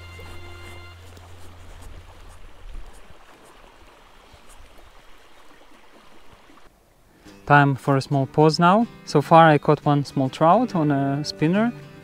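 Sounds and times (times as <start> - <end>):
backing music track: 0.0 - 2.2, 7.3 - 12.0
river water flowing: 0.0 - 12.0.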